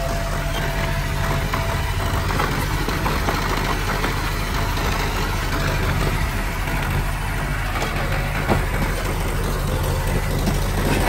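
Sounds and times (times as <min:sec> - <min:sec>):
bulldozer diesel engine running: 0:00.0 - 0:11.0.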